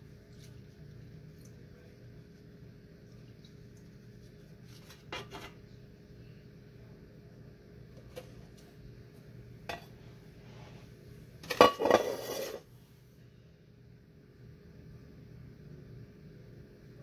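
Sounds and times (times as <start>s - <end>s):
metal pitcher clanking on counter: 11.5s - 12.6s.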